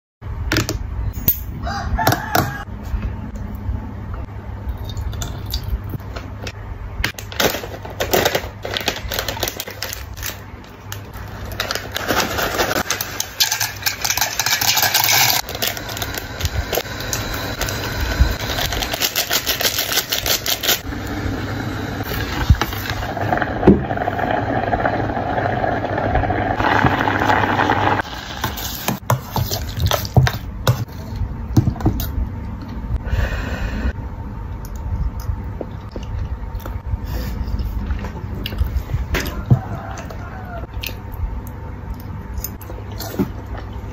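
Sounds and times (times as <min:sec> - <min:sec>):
low hum: 0:00.2 - 0:28.4
packet rustling and tearing: 0:07.2 - 0:20.8.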